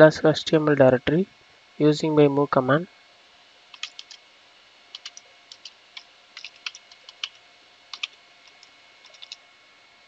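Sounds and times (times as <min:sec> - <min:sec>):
computer keyboard typing: 0:03.7 - 0:04.2, 0:04.9 - 0:09.4.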